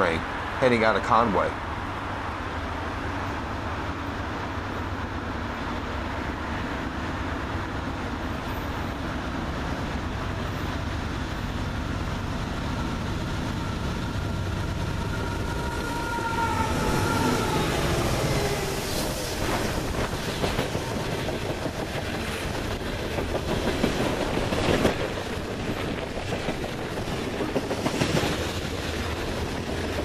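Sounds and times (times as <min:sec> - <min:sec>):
diesel freight train rumble: 0:00.0 - 0:30.0.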